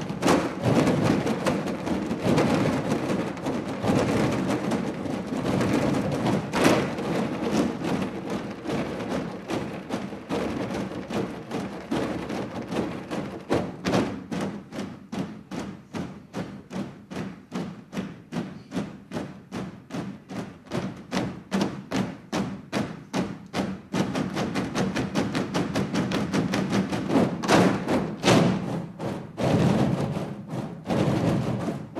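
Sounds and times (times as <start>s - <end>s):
drumming on plastic bins: 0.0s - 31.9s.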